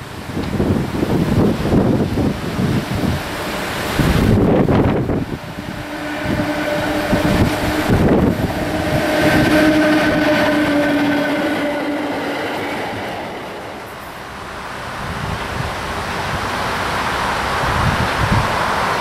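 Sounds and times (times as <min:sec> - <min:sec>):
train wheels on rails: 0:00.0 - 0:19.0
steady tone: 0:02.8 - 0:14.6.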